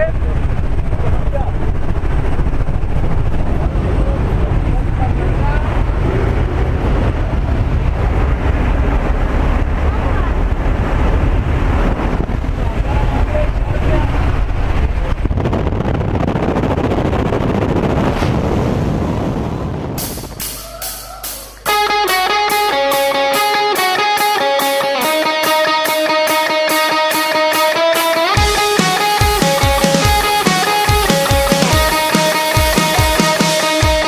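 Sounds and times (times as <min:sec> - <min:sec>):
wind in cabin: 0:00.0 - 0:21.4
airplane engine rumble: 0:00.0 - 0:25.2
music with regular beat: 0:20.0 - 0:34.0.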